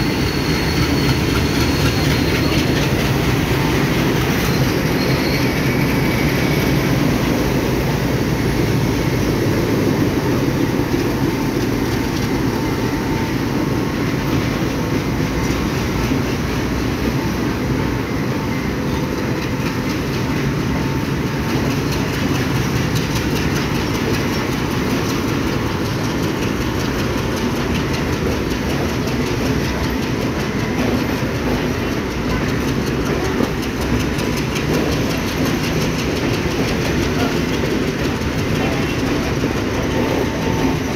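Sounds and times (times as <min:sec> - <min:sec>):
train running past: 0:00.0 - 0:40.9
wheels clicking over rail joints: 0:18.8 - 0:40.9.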